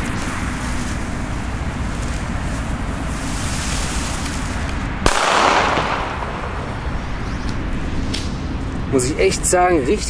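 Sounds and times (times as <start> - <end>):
firecracker preburner: 0.0 - 8.3
firecracker bang: 5.0 - 7.2
short echo: 5.1 - 7.0.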